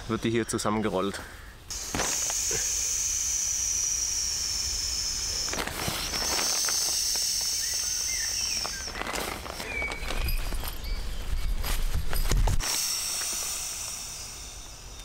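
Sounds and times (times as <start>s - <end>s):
air hissing from valve: 1.7s - 8.9s, 12.6s - 15.0s
sleeping pad rustling: 5.5s - 13.5s.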